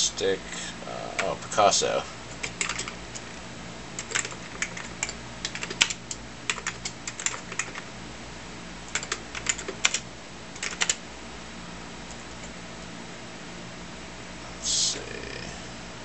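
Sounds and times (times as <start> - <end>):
steady low hum: 0.0 - 16.0
computer keyboard keystrokes: 2.3 - 3.3, 4.0 - 7.8, 8.9 - 10.0, 10.6 - 11.0.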